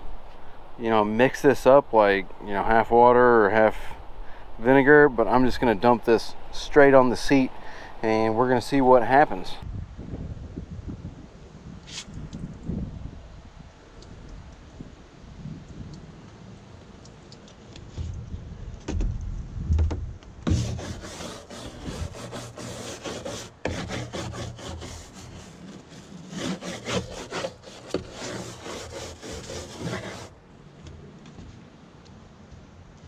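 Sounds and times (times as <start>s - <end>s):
scrub brush scrubbing plastic: 20.5s - 30.3s.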